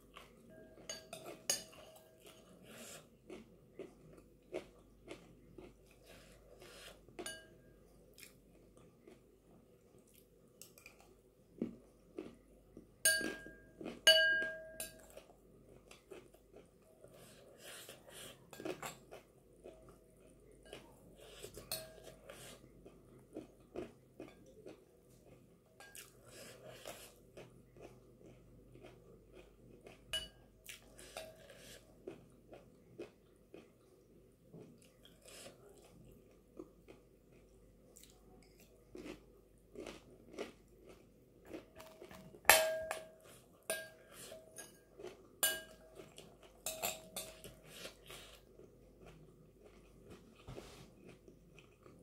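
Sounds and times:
chewing and crunching snack: 0:00.0 - 0:14.1, 0:14.9 - 0:42.5, 0:43.1 - 0:52.0
metal spoon clinking on glass bowl: 0:00.6 - 0:02.1, 0:07.2 - 0:07.6, 0:13.1 - 0:15.1, 0:21.7 - 0:22.1, 0:30.2 - 0:30.4, 0:42.5 - 0:44.8, 0:45.4 - 0:45.9, 0:46.6 - 0:47.5.

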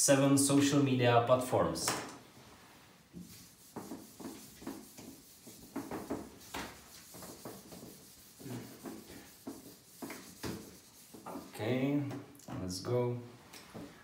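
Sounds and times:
whiteboard being wiped: 0:02.4 - 0:12.0.

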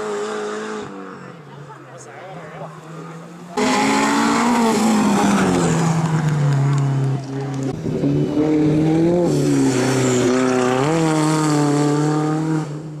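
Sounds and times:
race car engine driving past: 0:00.0 - 0:12.9.

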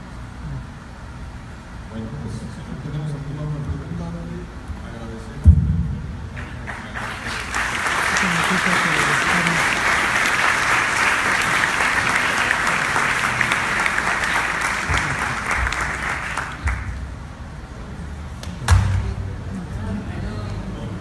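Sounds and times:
audience applauding: 0:06.4 - 0:17.1.

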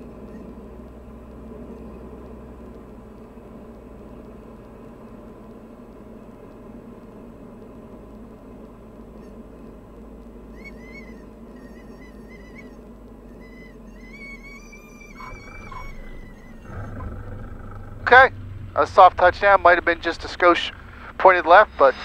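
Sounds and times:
stall warning horn chirping: 0:00.0 - 0:03.3, 0:08.8 - 0:22.0
airplane engine and propeller drone: 0:00.0 - 0:22.0.

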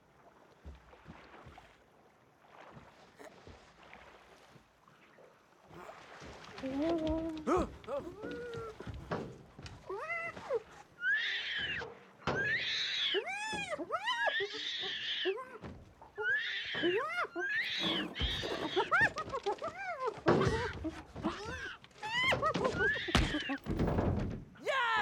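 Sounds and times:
animals shrieking and yelping: 0:10.0 - 0:15.6, 0:16.2 - 0:23.6.

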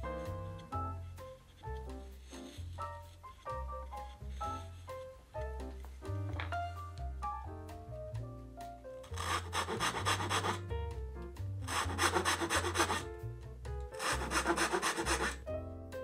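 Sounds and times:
soft background music: 0:00.0 - 0:16.0
pull saw rasping through wood: 0:09.1 - 0:10.6, 0:11.7 - 0:13.0, 0:14.0 - 0:15.5.

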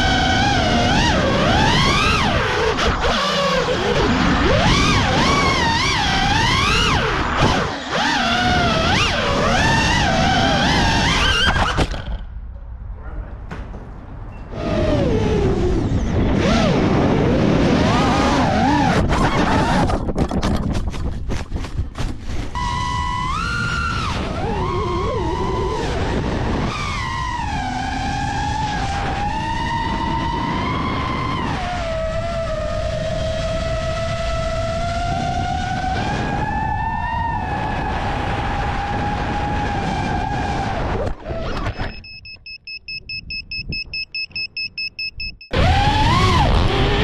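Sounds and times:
drone motors whining: 0:00.0 - 0:12.4, 0:14.4 - 0:20.0, 0:22.5 - 0:47.0
high-pitched beeper chirping: 0:41.8 - 0:45.6.

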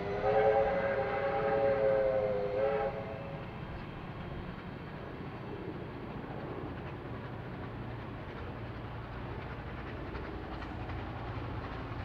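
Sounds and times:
train horn blast: 0:00.0 - 0:03.4
train rumble: 0:00.0 - 0:12.0.

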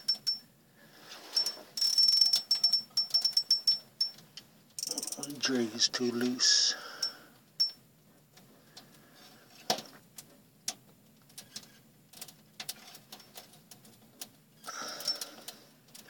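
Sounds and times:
rustle: 0:00.9 - 0:01.8
fishing reel clicking: 0:04.8 - 0:05.4.

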